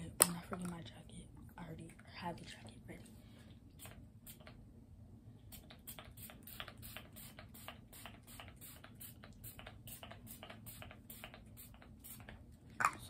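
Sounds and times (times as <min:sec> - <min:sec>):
spray bottle hissing sprays: 0:05.5 - 0:12.4.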